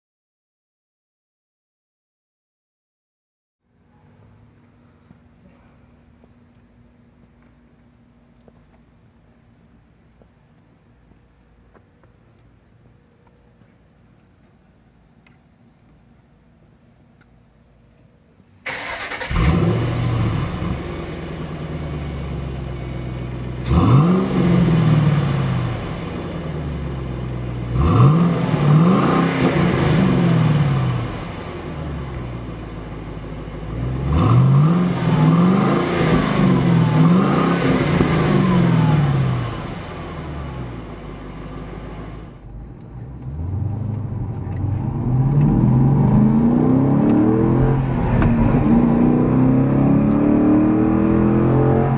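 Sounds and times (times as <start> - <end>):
car engine idling and revving: 18.7 - 51.9
car accelerating from inside cabin: 23.6 - 26.0, 27.8 - 31.4, 34.0 - 39.9, 42.5 - 51.9.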